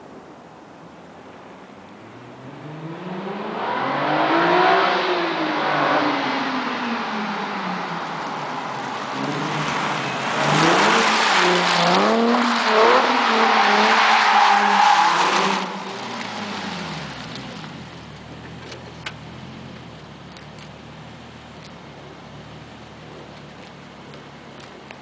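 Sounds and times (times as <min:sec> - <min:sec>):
car engine accelerating past: 0:02.2 - 0:07.5.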